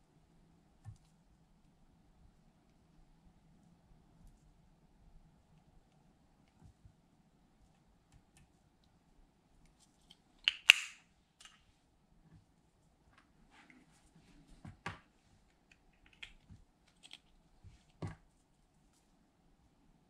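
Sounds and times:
plastic compact clicks and taps: 0:10.5 - 0:11.0.

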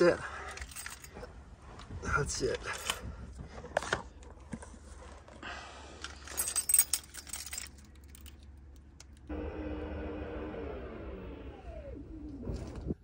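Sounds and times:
car keys jangling: 0:00.4 - 0:01.3, 0:06.2 - 0:09.2.

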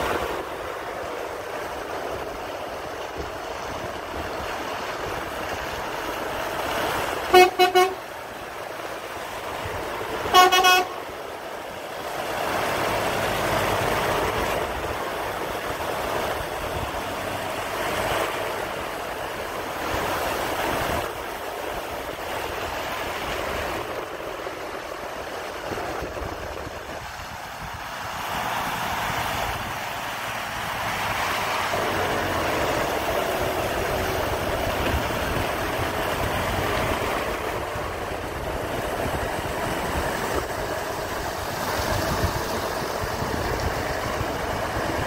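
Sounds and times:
diesel truck engines driving: 0:00.0 - 0:45.0
truck horn blasts: 0:07.2 - 0:08.1, 0:10.2 - 0:11.1.

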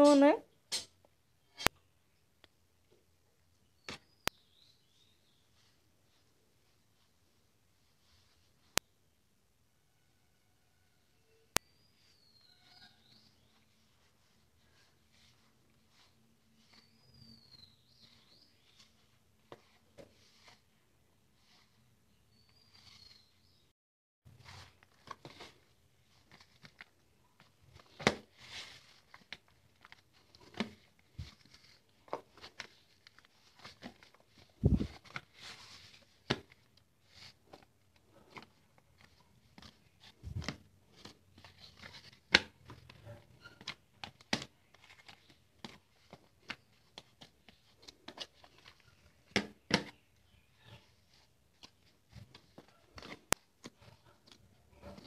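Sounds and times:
dough squishing while kneading: 0:24.3 - 0:55.0.

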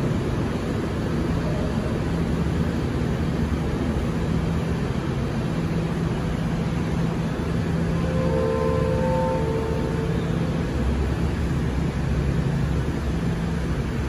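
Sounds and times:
train air-conditioning rushing noise: 0:00.0 - 0:14.0
low steady tone: 0:05.6 - 0:14.0.

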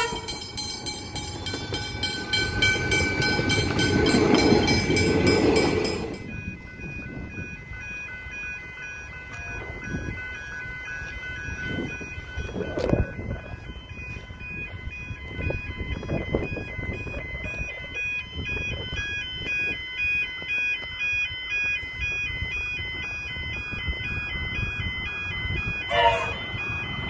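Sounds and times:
level crossing warning bells: 0:00.0 - 0:27.0
gusty low rumble: 0:01.4 - 0:20.3.

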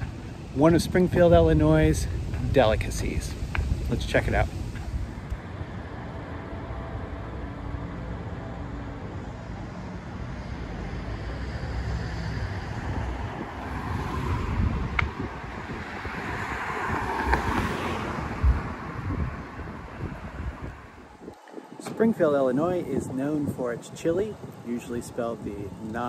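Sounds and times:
wind buffeting microphone: 0:00.0 - 0:07.4, 0:08.1 - 0:26.0
low traffic rumble: 0:00.0 - 0:26.0
car driving past: 0:09.8 - 0:21.0.

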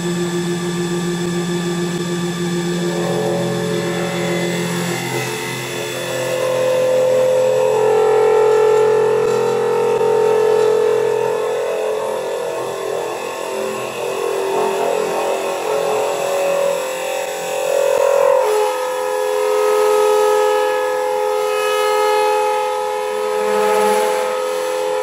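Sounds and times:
lathe cutter scraping wood: 0:00.0 - 0:18.7
machine whine: 0:00.0 - 0:25.0.

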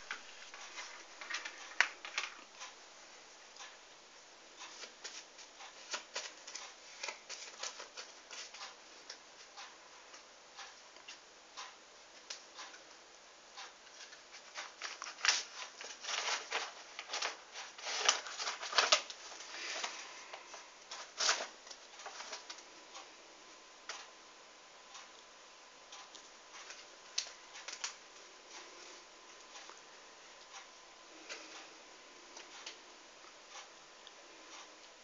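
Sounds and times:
playing cards clicking and rustling: 0:00.0 - 0:02.5, 0:05.8 - 0:08.8, 0:13.9 - 0:20.0.

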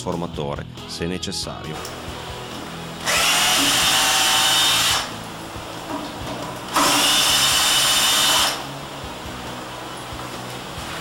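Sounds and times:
cordless drill running: 0:03.0 - 0:05.2, 0:06.7 - 0:08.8.

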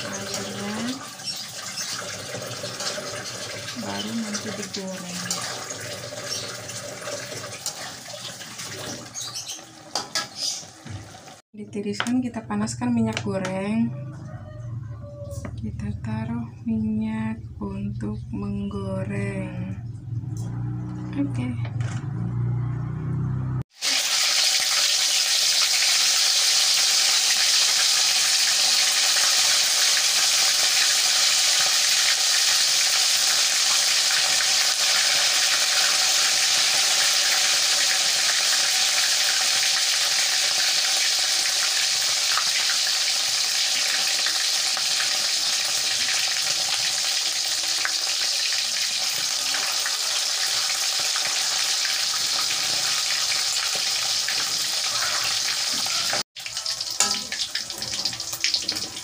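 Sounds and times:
chicken deep-frying in oil: 0:00.0 - 0:11.4, 0:23.7 - 0:59.0.

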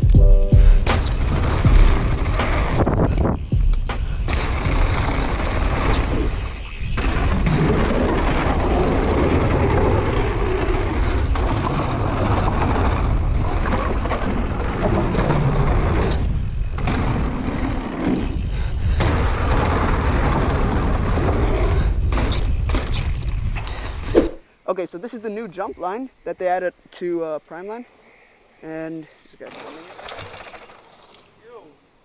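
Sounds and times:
bike tyres on dirt trail: 0:00.0 - 0:24.5, 0:29.1 - 0:31.4
wind buffeting on microphone: 0:00.7 - 0:24.4.

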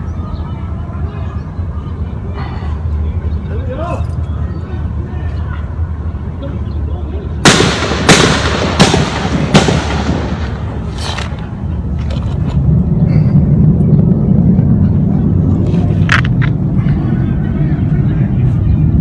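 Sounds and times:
low steady rumble: 0:00.0 - 0:19.0
echoing gunshots: 0:07.4 - 0:11.0.

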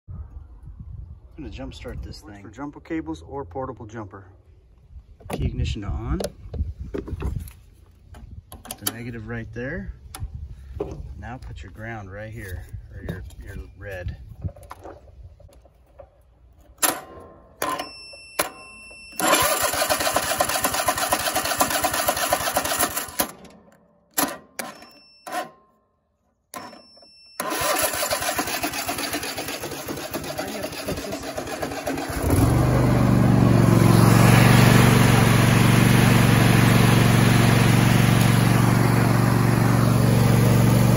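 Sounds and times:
starter cranking engine: 0:19.2 - 0:23.4, 0:27.4 - 0:40.9
mower engine running: 0:19.2 - 0:23.5, 0:27.4 - 0:40.9.

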